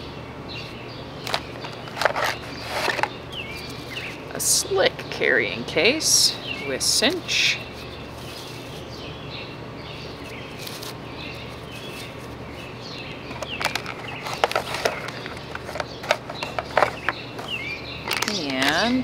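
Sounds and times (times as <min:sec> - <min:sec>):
low outdoor background: 0:00.0 - 0:19.0
small birds chirping: 0:00.0 - 0:19.0
plastic packaging crinkling: 0:13.4 - 0:18.9.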